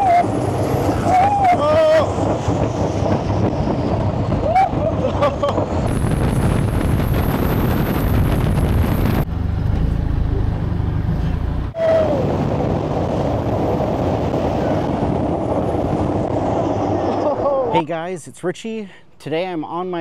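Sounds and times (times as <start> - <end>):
wind rushing: 0.0 - 9.5, 11.6 - 17.7.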